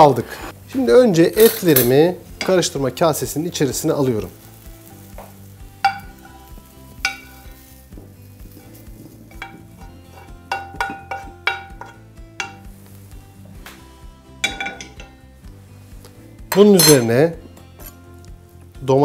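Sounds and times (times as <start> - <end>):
metal spoon scraping frying pan: 8.5 - 12.7.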